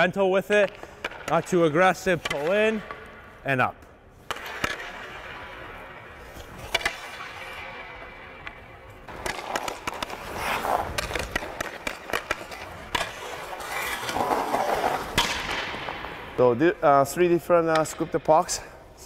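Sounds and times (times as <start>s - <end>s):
hockey stick clicking on puck: 0.6s - 3.1s, 4.3s - 5.4s, 6.4s - 16.2s
skate blades scraping ice: 4.2s - 16.6s.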